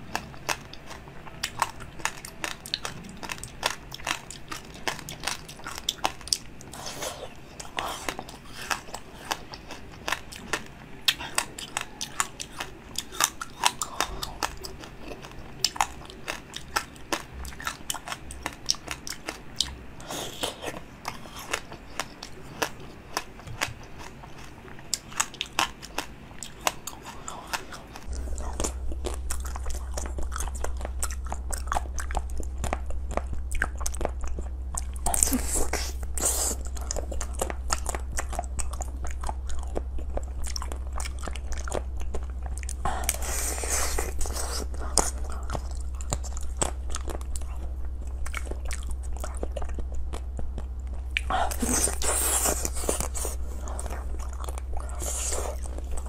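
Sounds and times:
crunchy chewing of ice pops: 0:00.0 - 0:56.0
steady low hum: 0:00.0 - 0:56.0.

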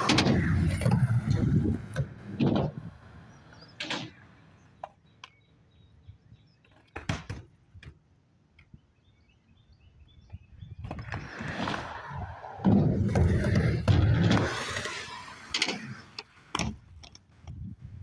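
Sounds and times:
wheels rolling on concrete: 0:00.0 - 0:05.0, 0:10.8 - 0:17.8.

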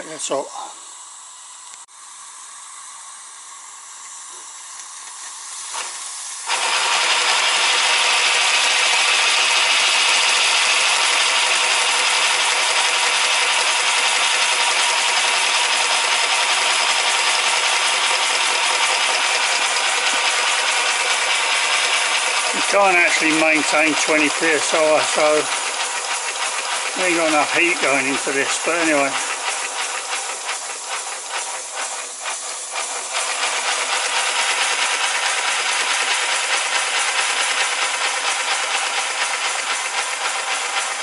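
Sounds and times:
steam hissing from locomotive: 0:02.0 - 0:41.0
loud rush of escaping steam: 0:26.6 - 0:36.8.

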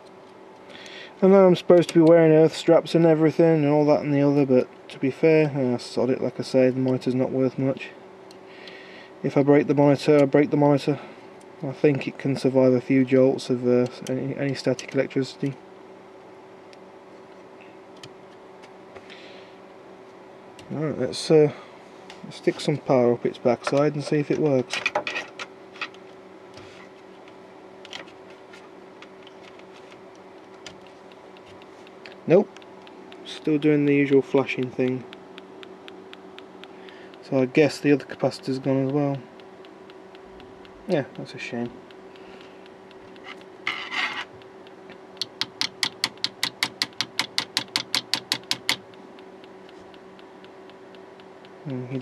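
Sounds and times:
steady low hum: 0:00.0 - 0:52.0
small ticks and clicks: 0:29.0 - 0:52.0.

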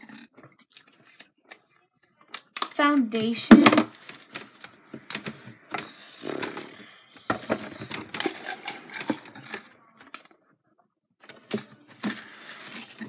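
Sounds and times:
plastic cups handled on table: 0:02.4 - 0:10.4, 0:11.2 - 0:13.0.

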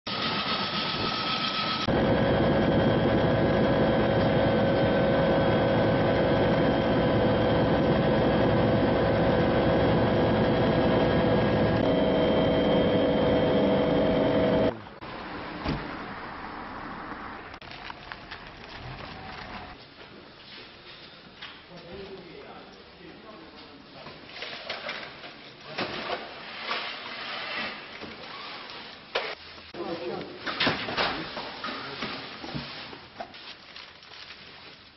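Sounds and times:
helicopter rotor and engine noise: 0:00.3 - 0:14.7
helicopter turbine whine: 0:00.3 - 0:14.7
objects scraping and rustling: 0:23.6 - 0:34.9.

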